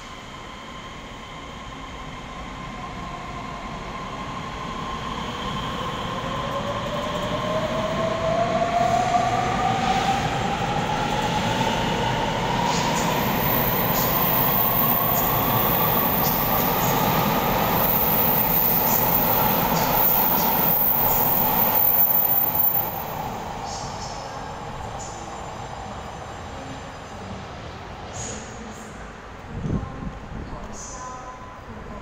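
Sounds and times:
rumble of train cars: 0.0 - 32.0.

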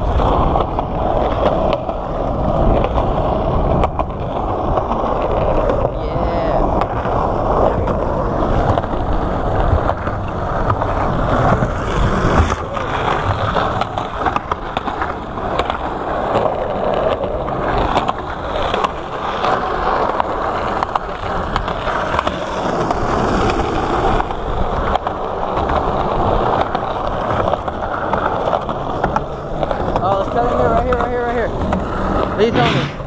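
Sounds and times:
skateboard wheels rumbling on concrete: 0.0 - 33.0
wheels clicking over slab seams: 6.7 - 32.4.

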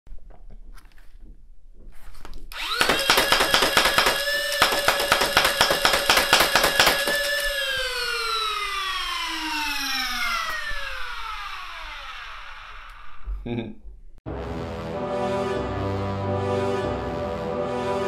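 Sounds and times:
flywheel motors whining: 2.5 - 13.2
rapid shots clattering: 2.6 - 7.4.

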